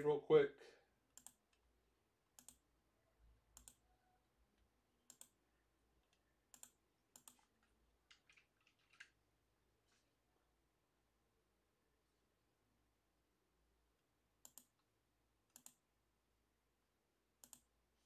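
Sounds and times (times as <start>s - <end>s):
computer mouse and keyboard clicks: 6.0s - 9.2s, 14.4s - 14.8s.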